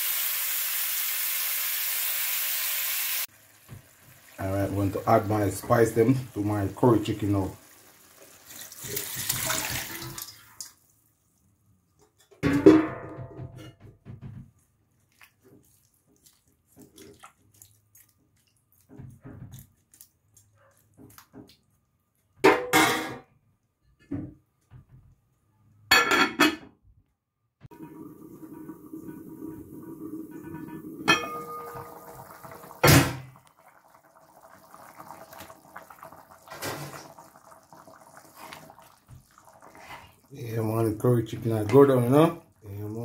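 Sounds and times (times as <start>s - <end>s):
curry bubbling at a simmer: 14.6s - 20.5s, 27.7s - 40.7s.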